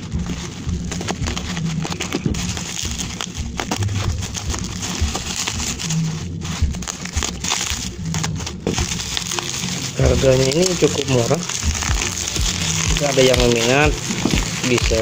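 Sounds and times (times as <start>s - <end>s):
bubble wrap crinkling: 0.0s - 15.0s
box cutter cutting plastic: 6.8s - 15.0s.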